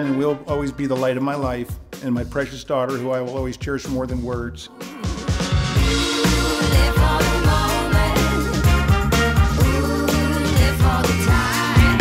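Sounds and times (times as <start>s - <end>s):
song with beat and singing: 4.6s - 12.0s.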